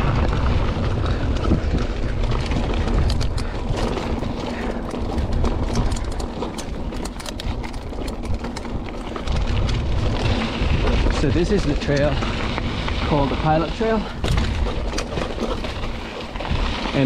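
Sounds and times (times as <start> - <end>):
bike clicks and rattles: 0.0 - 17.0
wind rumble on microphone: 0.0 - 17.0.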